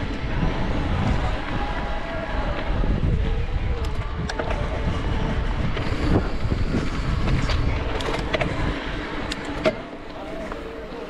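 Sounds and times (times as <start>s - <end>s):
mountain bike tyres rumbling: 0.0s - 11.0s
bike clicking and rattling on rocks: 3.7s - 11.0s.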